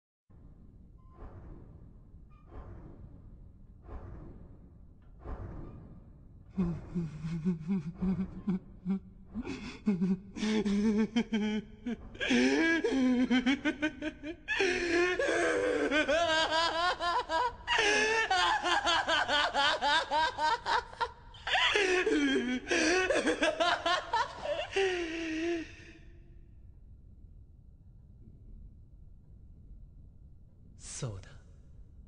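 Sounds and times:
man laughing maniacally: 6.6 - 26.0.

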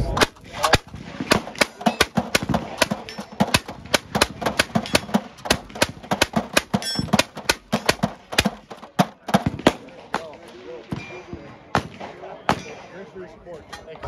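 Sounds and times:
gatling gun firing: 0.1 - 10.4.

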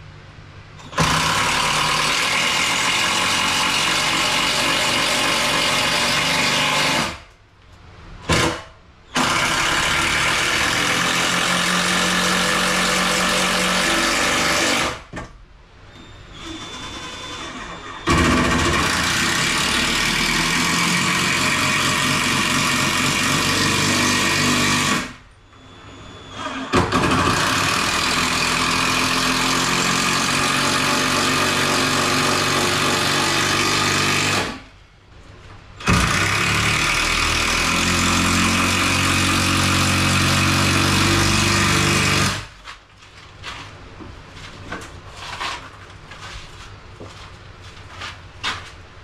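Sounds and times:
power driver driving screws: 35.8 - 42.5.

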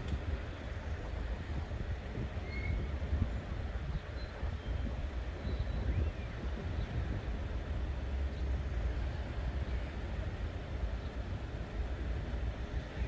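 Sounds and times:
wind on microphone: 0.0 - 9.5
road traffic: 0.0 - 13.0.

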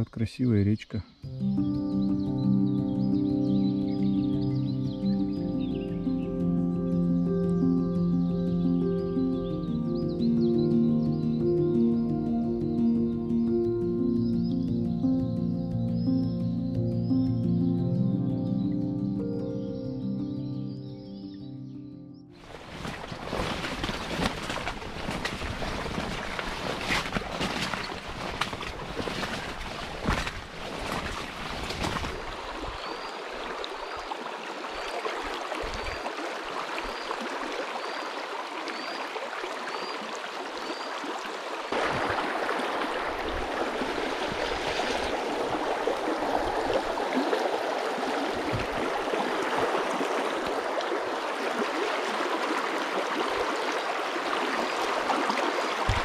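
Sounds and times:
river water running over stones: 22.4 - 56.0.

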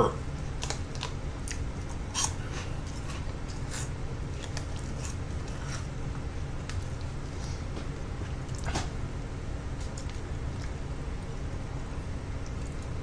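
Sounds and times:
faint steady hum: 0.0 - 13.0
snack bag crinkling: 0.5 - 3.7.

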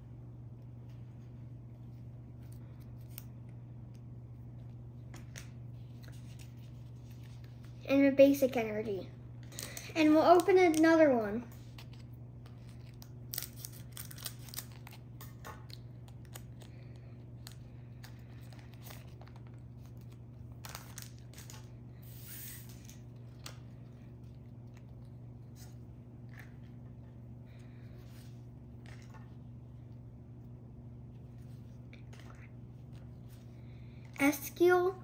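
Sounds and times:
cards being handled: 1.9 - 7.8
wrapper crinkling: 11.7 - 16.8
scissors cutting foil wrapper: 12.9 - 15.0.

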